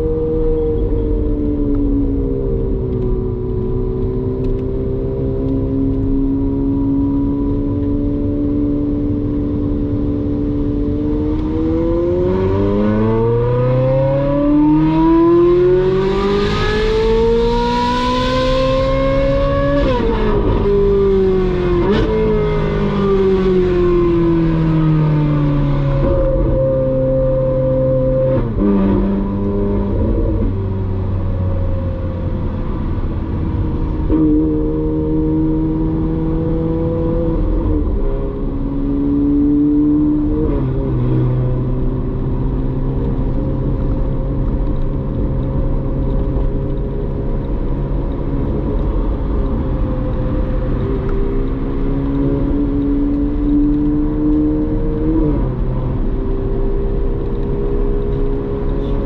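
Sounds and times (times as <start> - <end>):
car engine cruising: 0.0 - 59.0.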